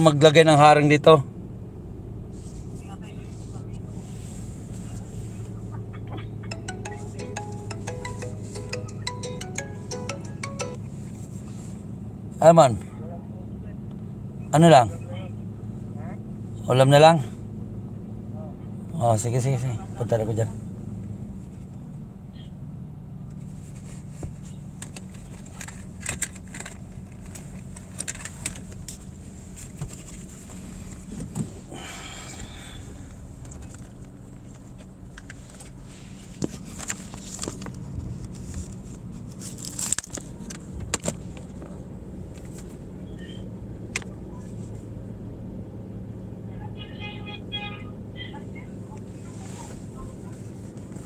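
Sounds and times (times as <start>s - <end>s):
engine hum inside van cab: 0.0s - 51.0s
light clicks and rattles: 24.2s - 29.0s.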